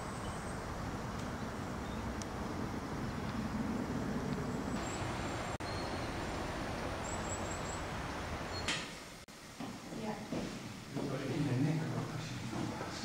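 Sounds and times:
outdoor background noise: 0:00.0 - 0:13.0.

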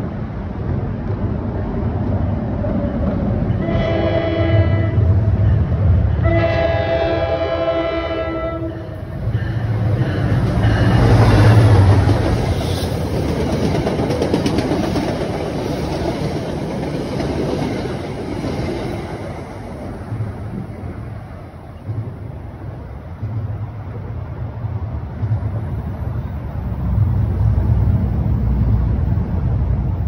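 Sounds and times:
train horn blast: 0:03.5 - 0:09.0
train wheels clicking on rail joints: 0:08.8 - 0:30.0.

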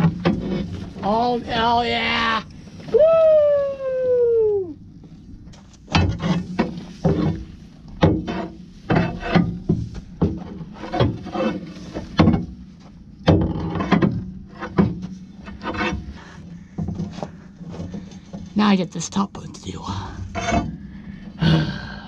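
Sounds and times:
metal bar striking and scraping mud: 0:05.9 - 0:16.2, 0:20.3 - 0:20.8.

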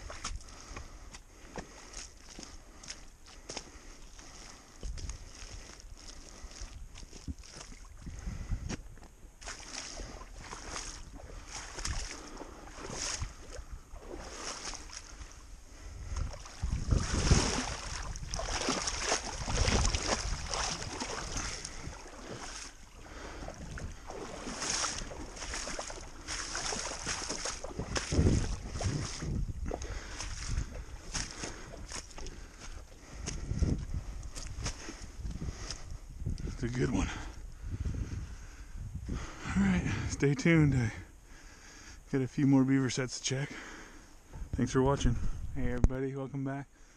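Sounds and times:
boots squelching in mud: 0:00.0 - 0:35.9
water and mud sloshing: 0:00.0 - 0:41.7.

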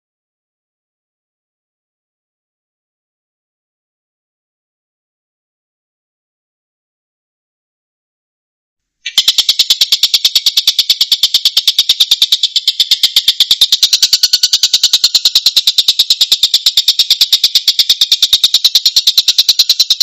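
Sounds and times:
bird rattling call: 0:09.0 - 0:20.0.

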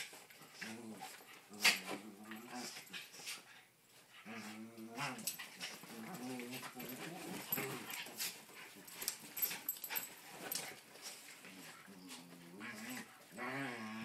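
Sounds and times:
dogs scuffling and clicking: 0:00.0 - 0:14.0
dogs growling: 0:04.2 - 0:10.6, 0:11.5 - 0:14.0.

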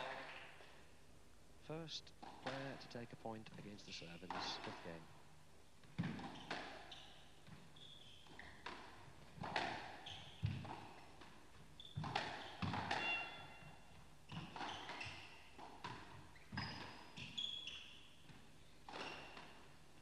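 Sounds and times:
shoes squeaking on court: 0:05.8 - 0:19.8
squash ball cracking off rackets: 0:08.3 - 0:13.6.

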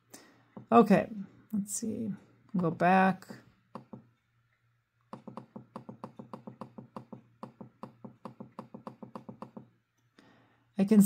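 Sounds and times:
rapid computer mouse clicking: 0:05.1 - 0:09.7.

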